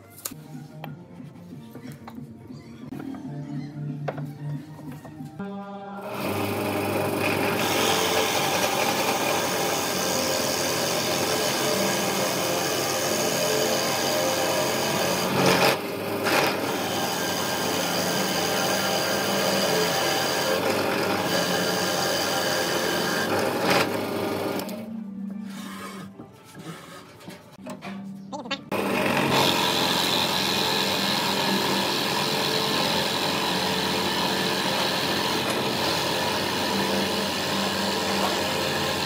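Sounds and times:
electric drill boring into wood: 6.0s - 24.8s, 28.7s - 39.0s.

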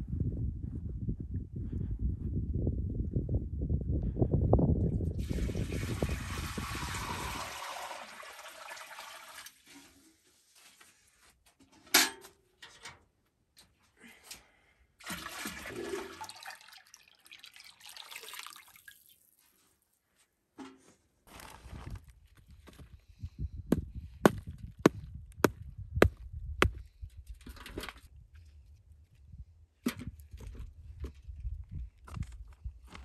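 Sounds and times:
wind rumbling on microphone: 0.0s - 7.6s, 21.5s - 33.0s
milk pouring into metal basin: 5.2s - 9.6s, 15.0s - 19.3s.

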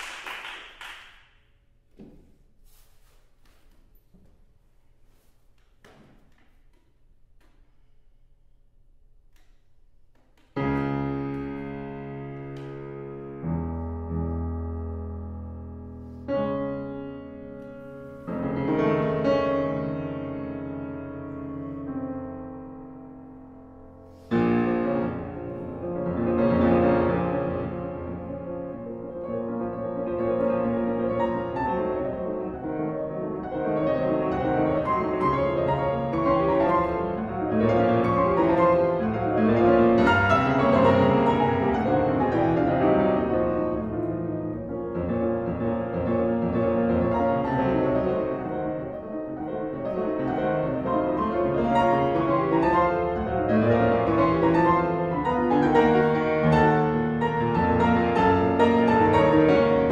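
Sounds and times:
solo classical piano: 9.3s - 59.9s.

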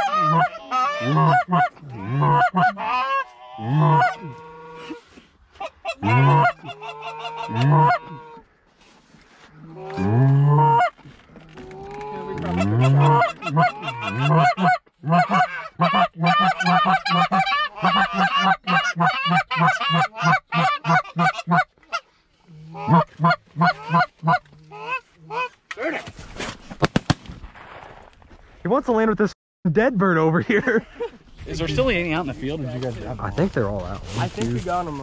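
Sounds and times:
goose honking and clucking: 0.0s - 8.5s, 9.6s - 25.6s
sharp crack: 26.4s - 28.3s.

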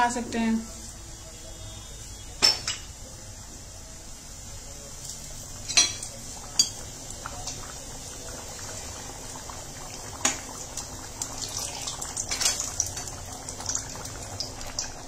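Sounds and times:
thick gravy bubbling and popping: 4.7s - 15.0s.

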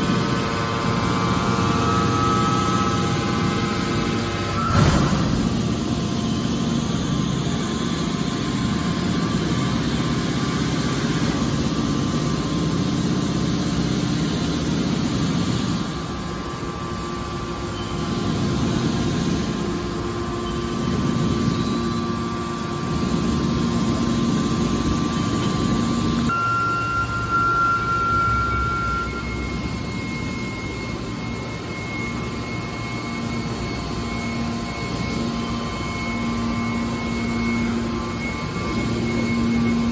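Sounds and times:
hydraulic power unit humming: 0.0s - 39.9s.

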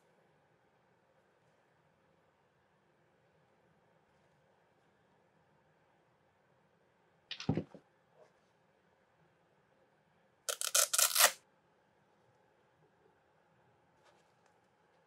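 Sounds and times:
hook-and-loop strap ripping open: 10.5s - 11.4s.

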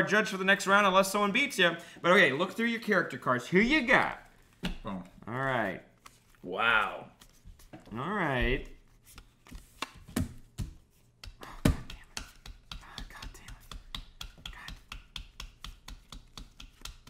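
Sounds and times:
hand claps: 11.2s - 17.0s.

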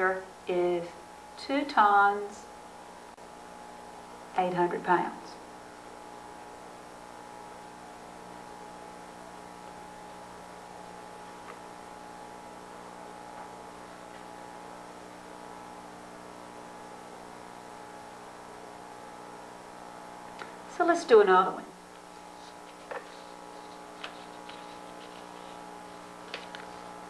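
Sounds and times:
electrical hum with hiss: 0.0s - 27.0s.

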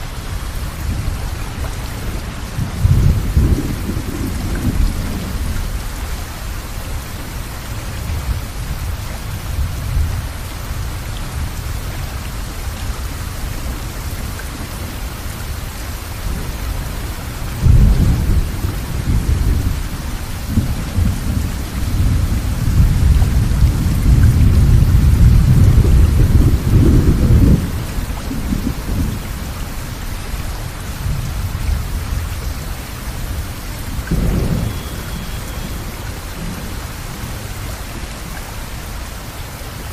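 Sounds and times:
thunder rumbling: 0.0s - 38.2s
steady rain falling: 0.0s - 39.9s.

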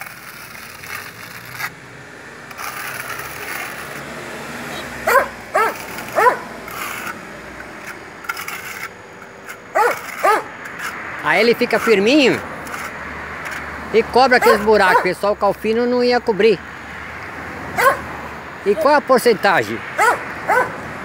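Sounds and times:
trowel scraping on concrete: 0.0s - 15.8s
dog barking: 5.0s - 6.4s, 9.8s - 10.5s, 14.4s - 15.1s, 17.8s - 18.0s, 20.0s - 20.8s.

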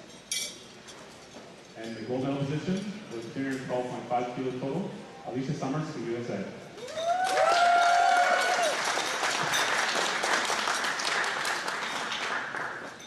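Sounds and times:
person whooping: 6.8s - 8.8s
audience applauding: 6.9s - 13.0s.

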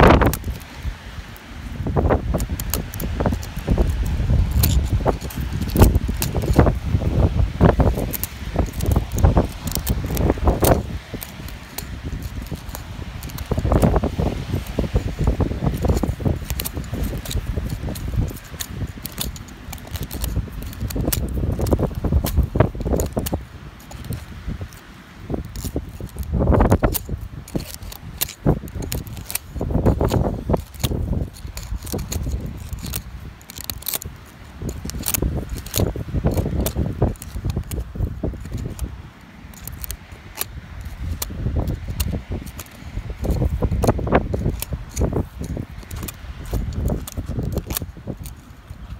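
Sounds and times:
screwdriver scraping sandy soil: 0.0s - 48.9s.

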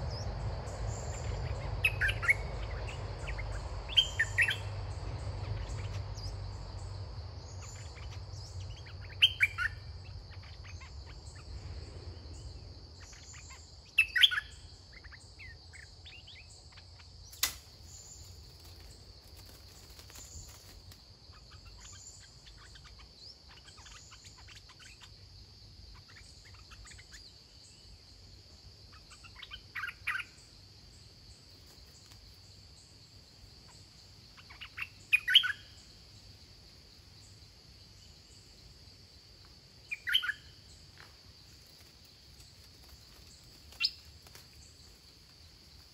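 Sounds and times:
birds singing chirpy phrases: 0.0s - 11.6s, 12.3s - 45.9s
high insect drone: 0.0s - 45.9s
sharp click: 17.3s - 17.8s.

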